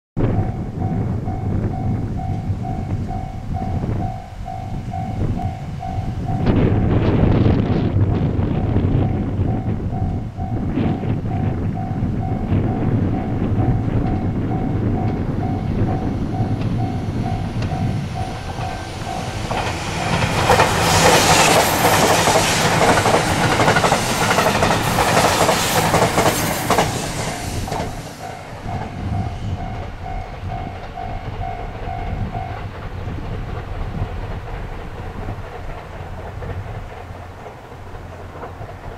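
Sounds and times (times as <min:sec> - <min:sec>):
level-crossing warning bell: 0:00.2 - 0:06.6, 0:08.6 - 0:25.6, 0:27.3 - 0:32.7
electric train passing: 0:00.2 - 0:38.9.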